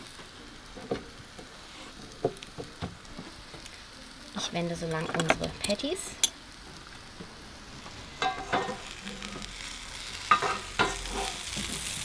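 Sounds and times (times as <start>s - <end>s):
patties sizzling in oil: 0.0s - 12.0s
utensil scraping and clinking pan: 8.2s - 8.9s, 10.3s - 11.5s.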